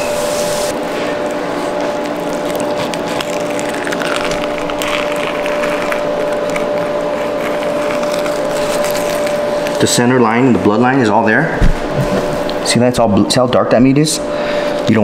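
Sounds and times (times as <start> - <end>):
steady background hum: 0.0 - 15.0
knife slicing and scraping fish: 1.6 - 9.7.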